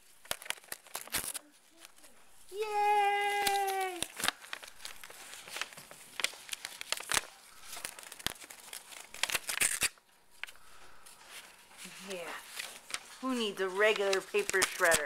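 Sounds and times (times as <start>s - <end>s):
rabbit tearing paper: 8.0s - 10.0s, 11.8s - 15.0s.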